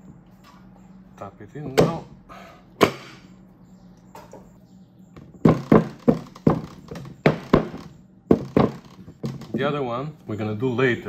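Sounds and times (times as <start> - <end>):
rubber mallet knocking on metal: 5.2 - 9.6.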